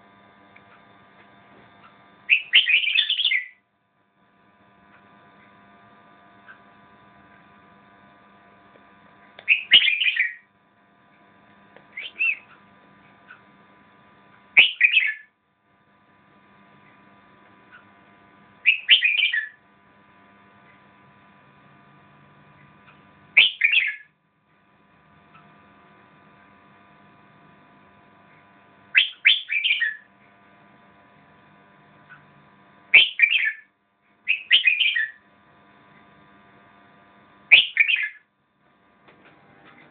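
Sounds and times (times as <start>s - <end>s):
faint steady hum: 0.0s - 39.9s
bird singing warbled phrases: 2.3s - 3.6s, 9.4s - 10.5s, 12.0s - 12.6s, 14.6s - 15.3s, 18.6s - 19.6s, 23.4s - 24.1s, 28.9s - 30.1s, 32.9s - 33.7s, 34.3s - 35.2s, 37.5s - 38.2s.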